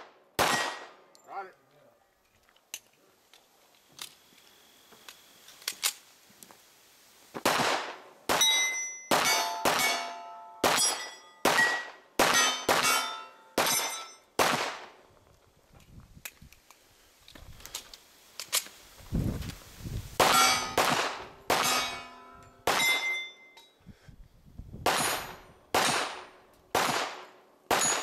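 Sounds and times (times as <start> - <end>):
steel plate ringing clang: 8.4 - 14.3, 20.2 - 20.8, 21.6 - 23.8
handgun shots: 24.9 - 28.0.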